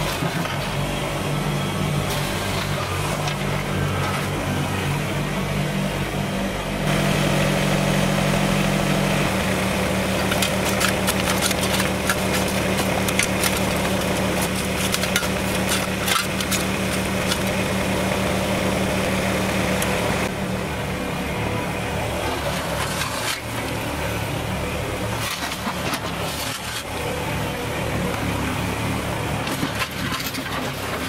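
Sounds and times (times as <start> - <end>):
tractor diesel engine idling: 0.0 - 31.0
shovel scraping into gravelly soil: 10.2 - 17.6.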